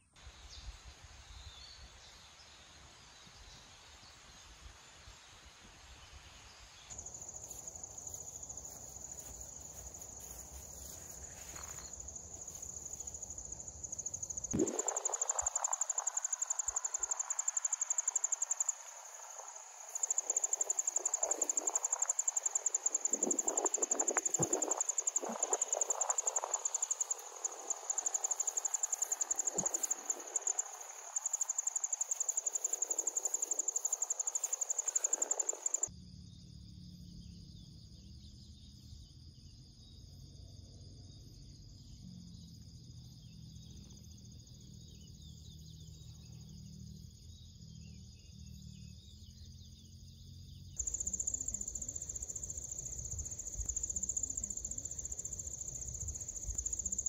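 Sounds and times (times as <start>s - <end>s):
insects trilling: 6.8s - 57.0s
walking through tall grass: 7.0s - 13.8s, 27.4s - 35.9s.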